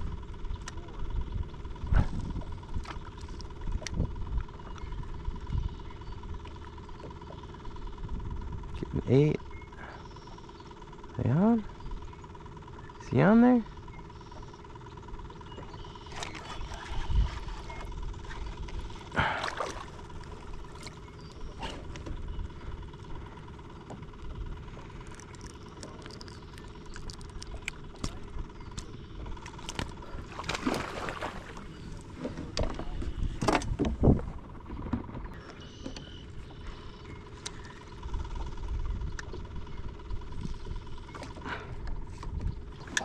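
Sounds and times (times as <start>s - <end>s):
wind rumble on microphone: 0.0s - 6.4s, 16.6s - 19.4s, 31.6s - 35.4s, 38.0s - 41.2s, 41.8s - 43.0s
fishing gear clicking and rustling: 23.1s - 30.0s.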